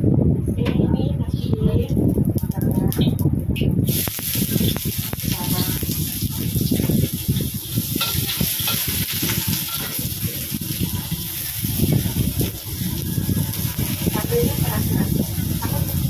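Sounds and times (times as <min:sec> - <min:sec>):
shallots sizzling in oil: 0:03.8 - 0:16.0
utensil scraping wok: 0:03.8 - 0:16.0.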